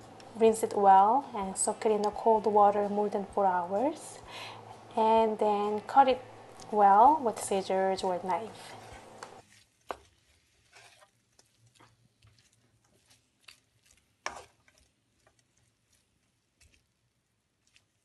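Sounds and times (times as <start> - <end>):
wooden spatula scraping pan: 8.4 - 15.4.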